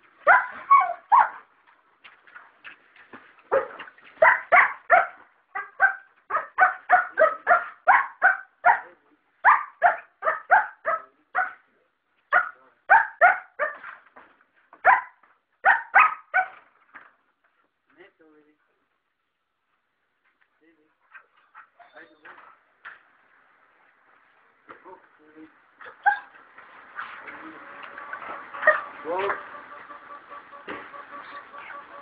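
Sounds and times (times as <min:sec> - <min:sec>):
dog barking: 0:00.2 - 0:01.4, 0:03.5 - 0:11.6, 0:12.3 - 0:13.9, 0:14.8 - 0:16.6, 0:28.6 - 0:28.9.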